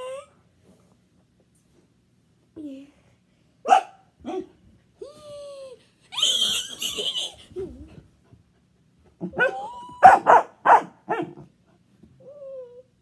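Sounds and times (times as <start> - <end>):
dog barking: 3.6 - 4.5, 9.4 - 11.5
dog whining: 9.2 - 10.4.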